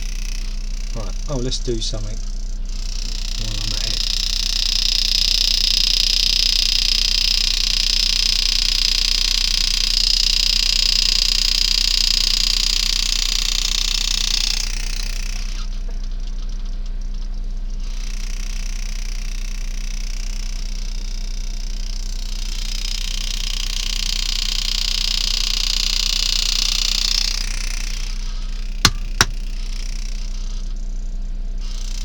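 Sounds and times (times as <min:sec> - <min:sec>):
low electrical hum: 0:00.0 - 0:07.4, 0:12.4 - 0:22.8, 0:24.7 - 0:32.0
engraving tool buzzing hiss: 0:00.0 - 0:16.7, 0:17.7 - 0:32.0.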